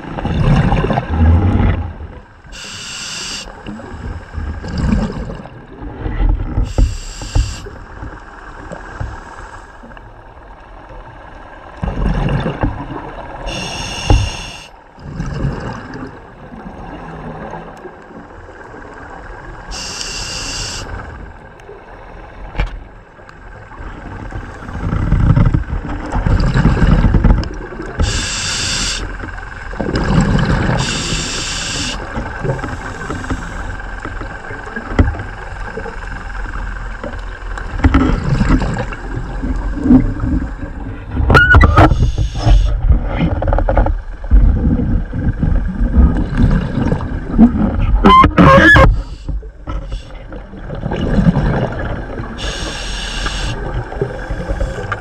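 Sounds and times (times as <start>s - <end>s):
exhaled bubbles surging: 0.0s - 2.8s, 3.6s - 7.8s, 11.8s - 17.8s, 29.6s - 43.3s, 44.3s - 55.0s
regulator hissing inhalations: 2.5s - 3.6s, 6.7s - 7.7s, 13.5s - 14.8s, 19.7s - 20.9s, 28.0s - 29.1s, 30.8s - 32.0s, 41.9s - 42.7s, 48.9s - 50.2s, 52.4s - 53.6s.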